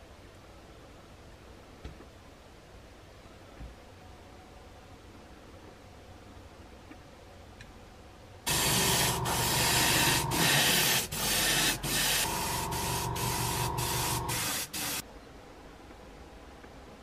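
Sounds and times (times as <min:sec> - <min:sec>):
airbrush hissing bursts: 0:08.5 - 0:15.0.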